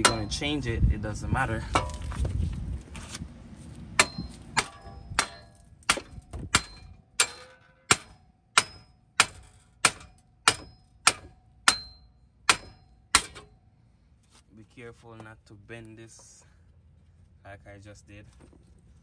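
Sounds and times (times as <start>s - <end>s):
hammer striking metal: 0.0s - 0.4s, 4.0s - 13.6s.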